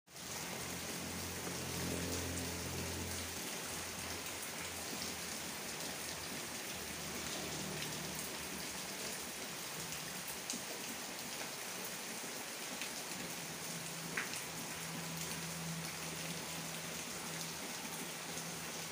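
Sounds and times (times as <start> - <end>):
steady rain hiss: 0.1 - 18.9
raindrop ticks: 14.1 - 14.5.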